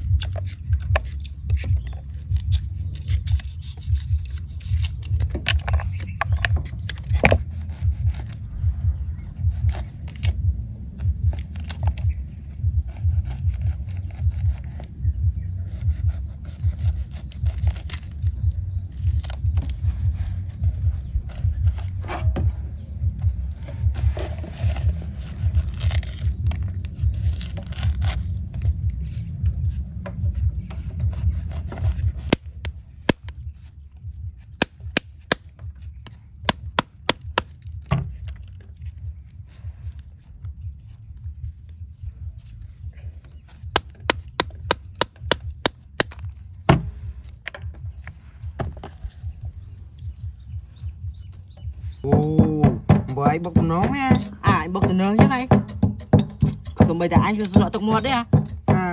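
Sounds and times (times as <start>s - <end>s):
low rumble: 0.0s - 58.9s
sharp knocks and snaps: 43.5s - 48.1s, 51.3s - 58.9s.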